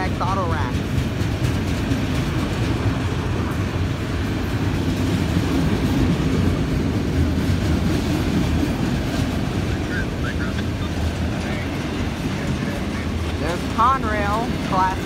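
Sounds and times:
freight train wheels rumbling on rails: 0.0s - 15.0s.

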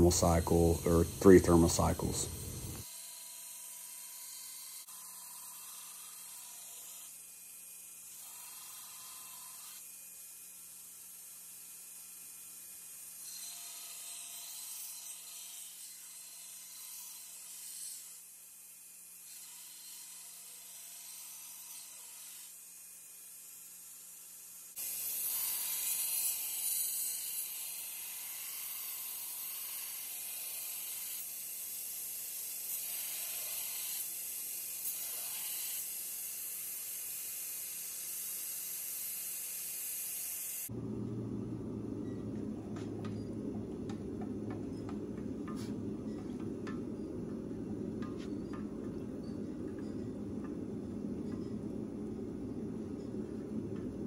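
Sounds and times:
belt grinder grinding steel: 0.0s - 7.3s, 13.1s - 18.2s, 24.8s - 40.8s, 43.1s - 51.8s.

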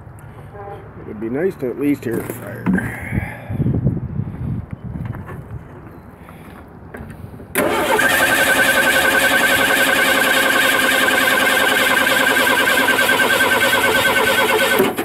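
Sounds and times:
engine starter cranking: 7.6s - 15.0s.

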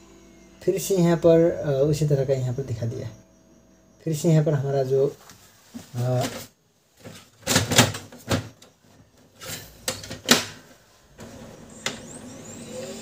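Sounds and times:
printer motor whirring: 0.0s - 5.1s, 7.4s - 13.0s
printer cover snapping shut: 10.0s - 10.6s.

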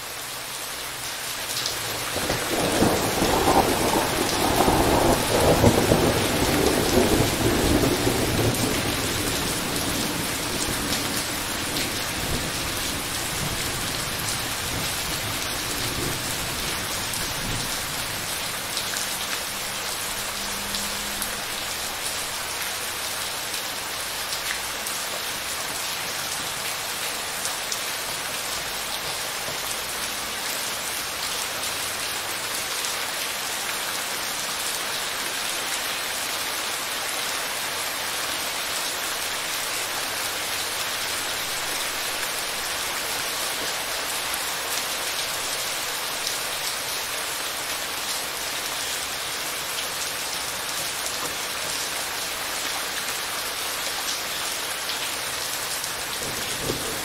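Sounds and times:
steady rain on wet surface: 0.0s - 57.0s
thunder rumble: 2.3s - 11.1s.

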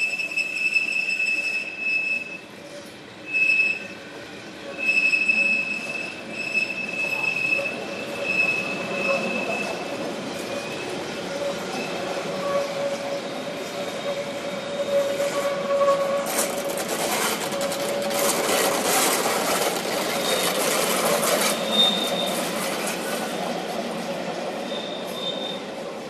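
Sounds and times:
train wheels rumbling on rails: 0.0s - 26.0s
wheel squealing: 4.8s - 23.5s, 24.7s - 25.7s
clatter over rail joints: 15.2s - 23.4s.

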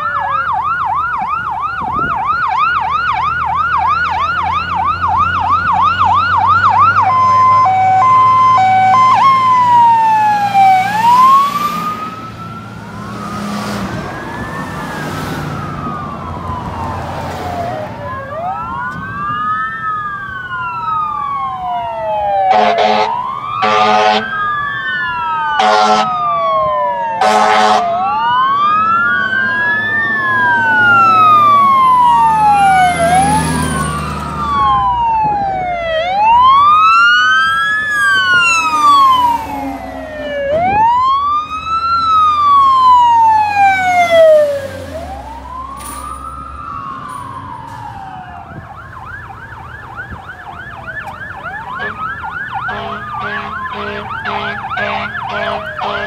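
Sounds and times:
fire truck sirens wailing: 0.0s - 56.0s
rapidly warbling siren: 0.0s - 56.0s
heavy truck engine: 2.8s - 26.6s, 27.2s - 56.0s
horn blasts: 22.5s - 24.3s, 25.6s - 26.2s, 27.2s - 27.9s, 51.7s - 56.0s.

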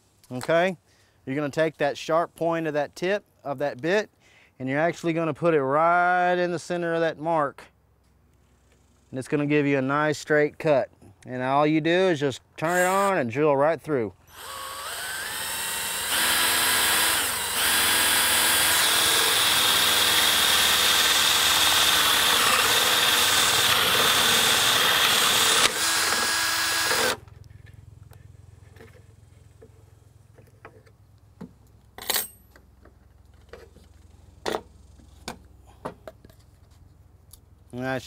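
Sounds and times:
cordless drill cutting plywood: 12.7s - 13.1s, 14.3s - 27.2s.

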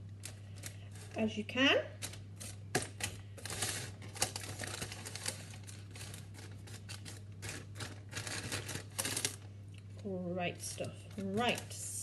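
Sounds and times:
steady low hum: 0.0s - 12.0s
paper crinkling: 2.0s - 9.5s.

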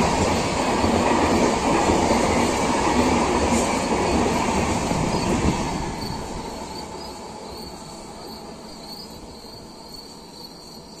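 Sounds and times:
train rushing past: 0.0s - 11.0s
crickets chirping: 3.8s - 11.0s.

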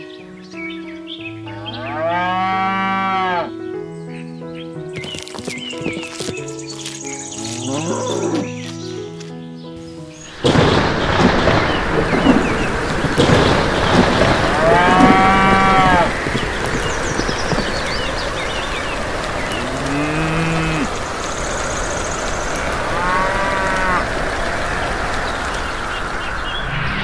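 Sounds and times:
cattle mooing: 1.6s - 3.5s, 7.6s - 8.5s, 14.5s - 16.1s, 19.6s - 20.9s, 22.9s - 24.1s
rain hissing: 5.0s - 9.3s, 10.1s - 27.0s.

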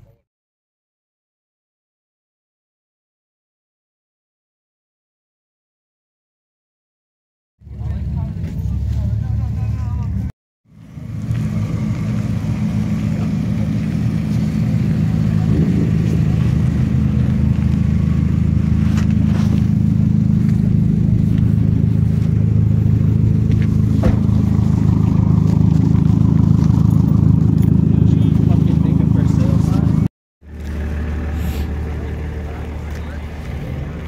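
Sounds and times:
car engine idling: 7.6s - 34.0s.

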